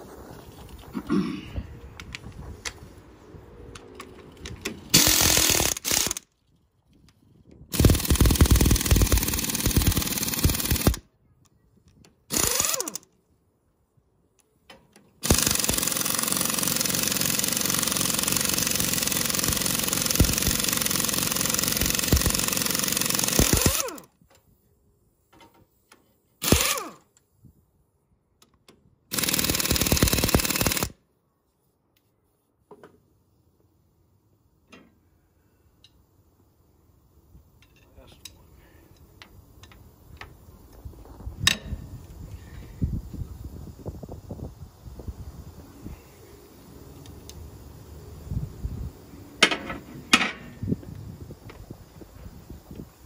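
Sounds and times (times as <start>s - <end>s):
impact wrench hammering: 15.2s - 24.0s.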